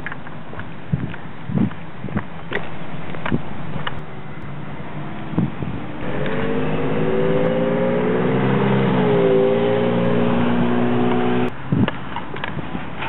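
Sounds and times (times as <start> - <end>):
vehicle engine running: 6.0 - 11.5.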